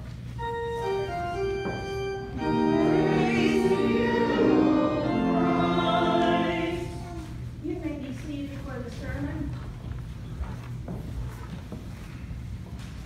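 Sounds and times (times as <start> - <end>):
organ sustained chords: 0.3 - 7.5
voices singing: 2.4 - 7.4.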